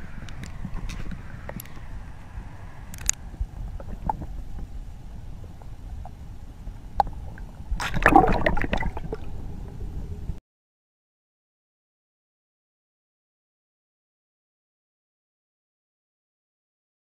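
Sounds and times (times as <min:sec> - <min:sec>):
low underwater rumble: 0:00.0 - 0:10.4
sharp underwater clicks: 0:00.2 - 0:01.9, 0:02.9 - 0:03.2
bubbling and splashing: 0:03.4 - 0:04.8, 0:06.9 - 0:10.4.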